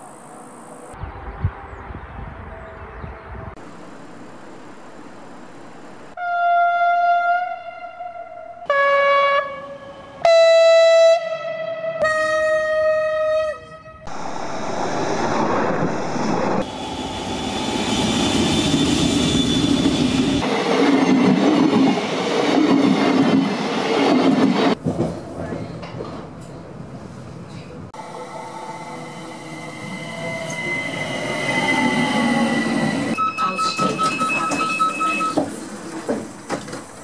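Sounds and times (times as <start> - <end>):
train horn blasts: 6.2 - 14.1
trains passing on rails: 14.1 - 37.0.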